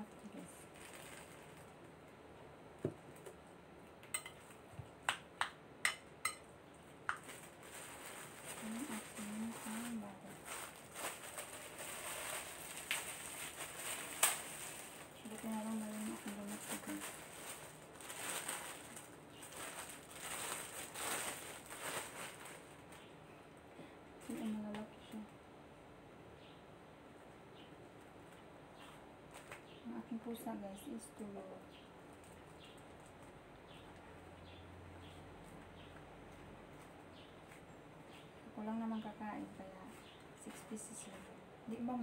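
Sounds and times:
plastic bag crinkling: 0.2 - 2.2, 7.0 - 23.2
cutlery clinking on a bowl: 4.1 - 4.4, 5.9 - 6.5.

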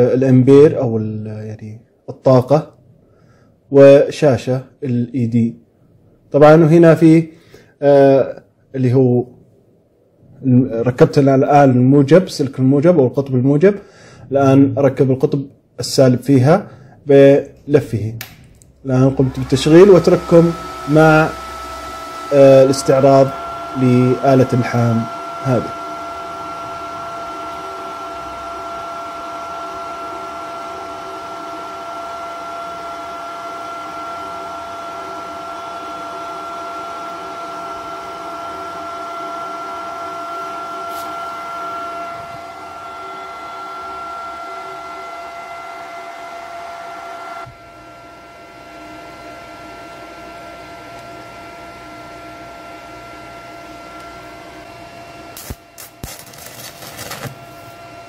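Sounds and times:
welder fan humming and whining: 16.5 - 58.0
welding arc crackling snaps: 55.4 - 57.3.

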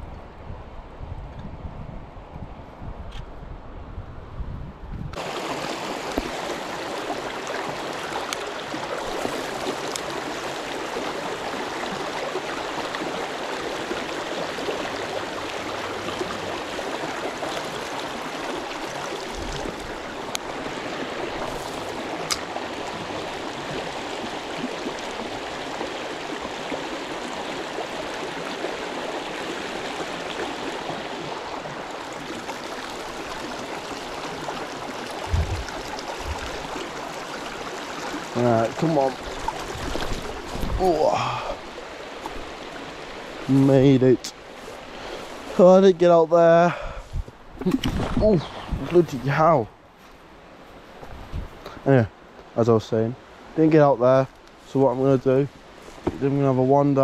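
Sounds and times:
river rippling over stones: 5.2 - 57.0.

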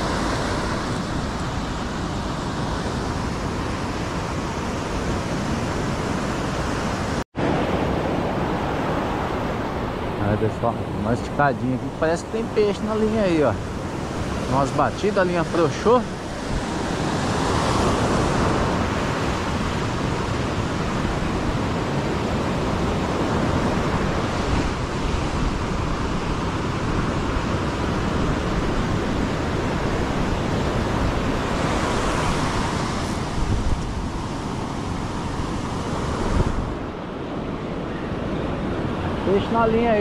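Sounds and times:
ocean surf breaking: 0.0 - 40.0
wind on microphone: 0.0 - 40.0.

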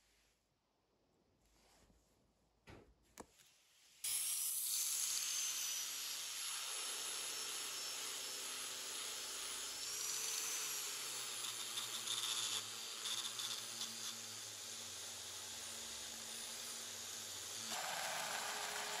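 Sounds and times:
angle grinder motor whine: 15.4 - 19.0.

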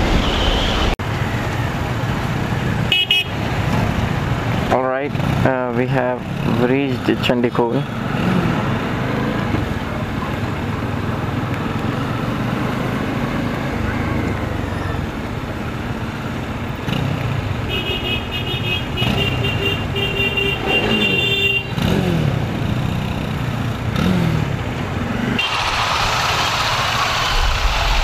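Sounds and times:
horn beeping: 17.7 - 21.8
rushing hiss: 25.4 - 28.0.

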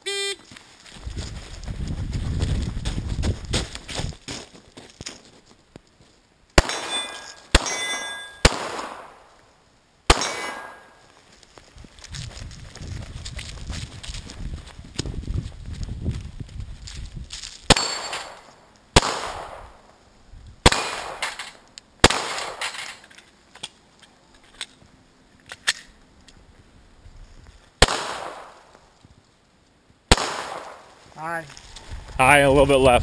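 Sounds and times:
pistol shots with echo: 6.6 - 9.2, 10.1 - 11.0, 17.7 - 19.8, 20.6 - 22.7, 27.8 - 28.6, 30.1 - 30.9.

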